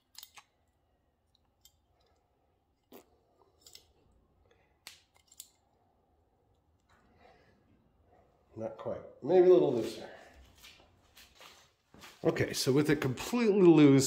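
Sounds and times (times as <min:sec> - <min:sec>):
small metal clicks and ticks: 0:00.0 - 0:02.2.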